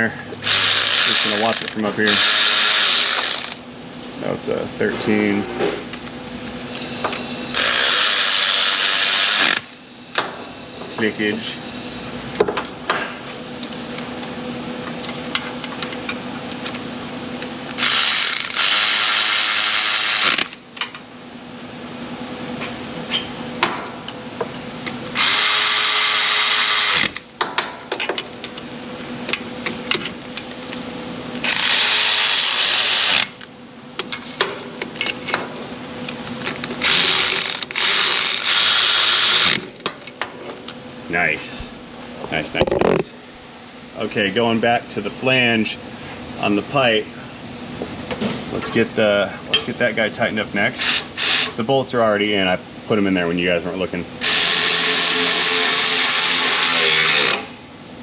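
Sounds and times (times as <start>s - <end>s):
electric ratchet running: 0.4s - 3.6s, 6.7s - 9.8s, 17.7s - 20.6s, 25.2s - 27.3s, 31.4s - 33.5s, 36.7s - 39.8s, 50.8s - 51.6s, 54.2s - 57.6s.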